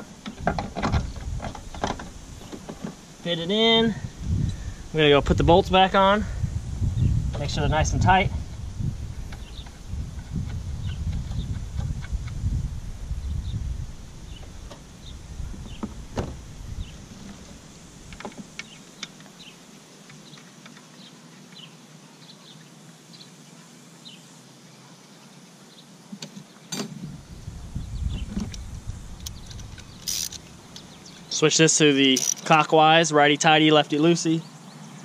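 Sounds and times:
wind rumble on microphone: 0.0s - 2.9s, 3.7s - 18.4s, 27.0s - 31.2s.

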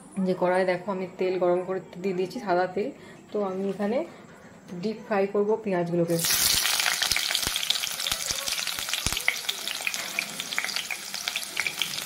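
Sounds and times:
onions sizzling in hot oil: 6.1s - 12.0s.

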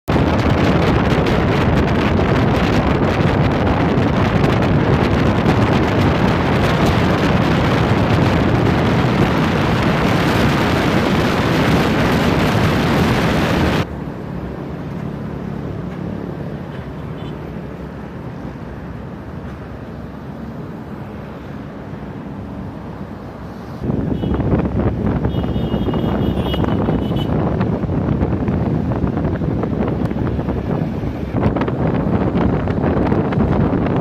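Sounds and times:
wind rushing over microphone: 0.0s - 16.5s, 17.9s - 34.0s
road noise: 0.0s - 34.0s
traffic hum: 0.0s - 34.0s.

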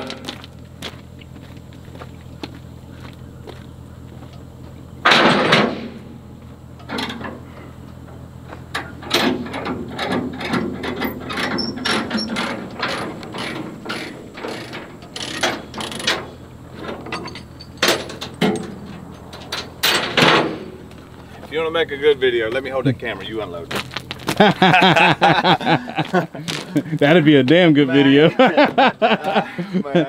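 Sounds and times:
low engine hum: 0.0s - 30.0s
metal chains clanking: 8.7s - 21.0s
ratchet clicks: 11.4s - 16.2s.

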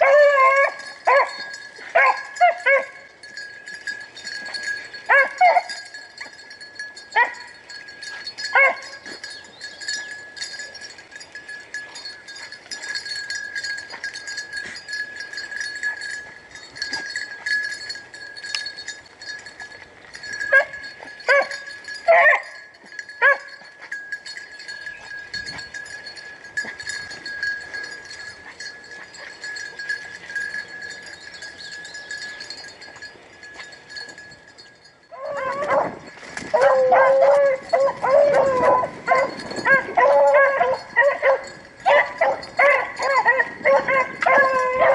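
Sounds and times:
distant hounds baying: 0.0s - 6.4s, 7.0s - 10.7s, 20.2s - 25.7s, 35.1s - 44.9s.

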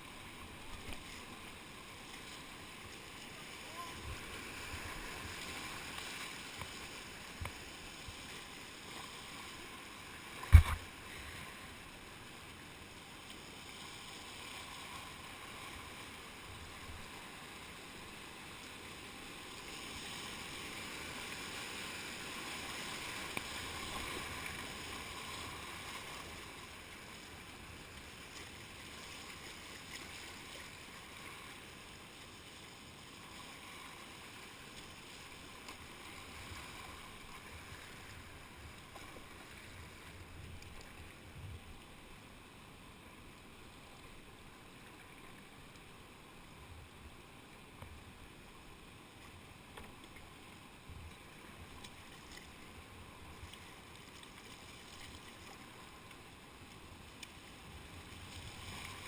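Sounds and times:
whitewater rushing: 0.1s - 8.0s.

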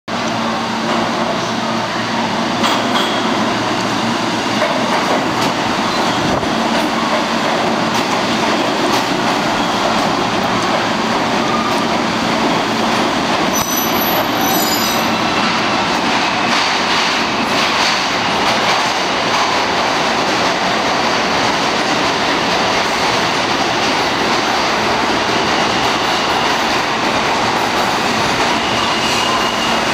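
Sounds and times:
subway train rumbling on rails: 0.1s - 29.9s
high-pitched train squeal: 5.8s - 7.3s, 11.3s - 12.1s, 13.5s - 15.3s, 25.4s - 29.9s.

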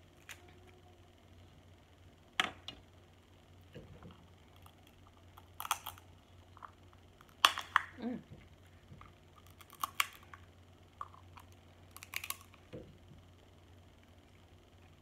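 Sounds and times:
crab shell cracking: 4.5s - 8.0s, 9.0s - 12.8s.

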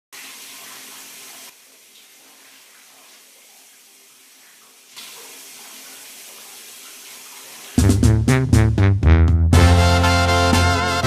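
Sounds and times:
shower water pouring and splashing: 0.1s - 8.0s.

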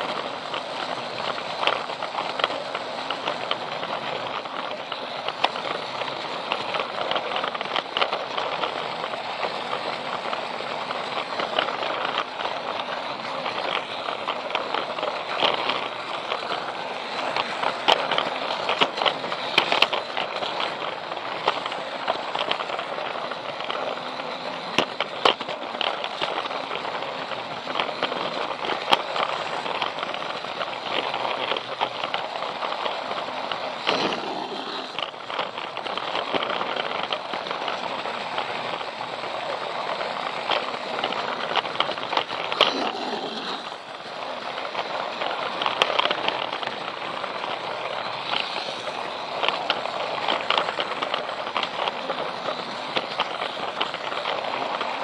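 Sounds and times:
plastic wheels clicking over track: 0.0s - 55.0s
toy train motor running: 0.0s - 55.0s.

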